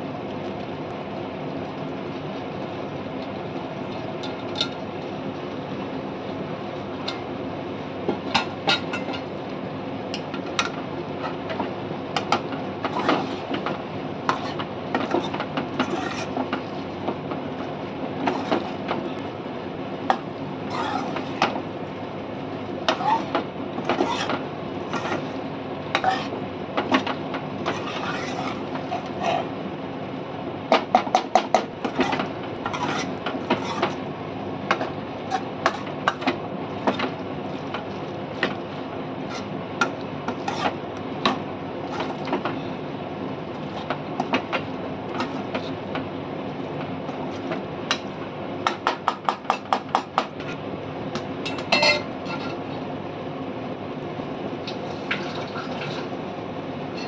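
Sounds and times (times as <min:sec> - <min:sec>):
steady hum: 0:00.0 - 0:57.0
ladle scraping metal pot: 0:20.7 - 0:21.4, 0:27.6 - 0:29.5, 0:54.9 - 0:56.2
ladle tapping pot: 0:51.5 - 0:52.1.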